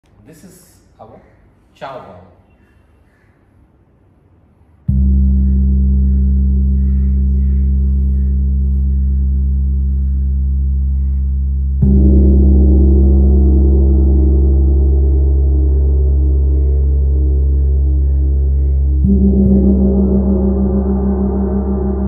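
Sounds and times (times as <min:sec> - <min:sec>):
large gong ringing: 0:04.9 - 0:22.0.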